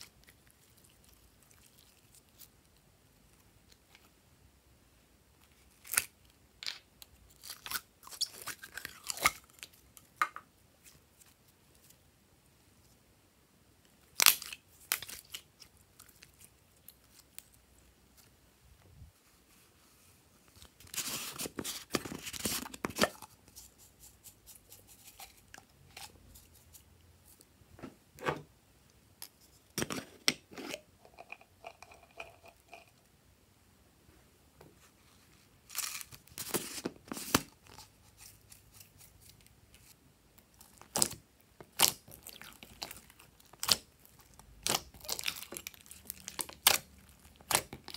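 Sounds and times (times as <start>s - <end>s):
slime wet crackling and popping: 40.4s - 47.9s.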